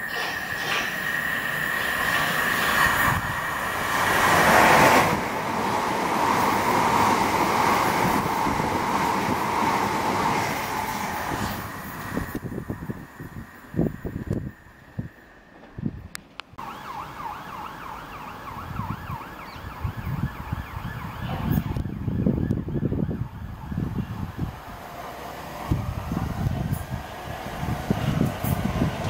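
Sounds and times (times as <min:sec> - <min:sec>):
electric train whine: 0:00.0 - 0:29.0
gusty low rumble: 0:11.2 - 0:16.2, 0:25.6 - 0:29.0
distant siren yelping: 0:16.6 - 0:24.7.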